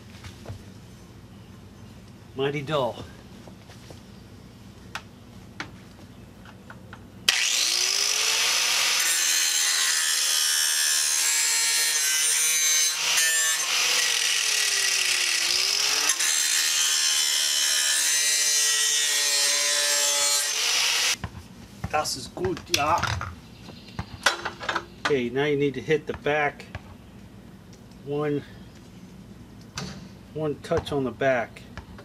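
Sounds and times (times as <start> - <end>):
angle grinder grinding steel: 7.3 - 21.2.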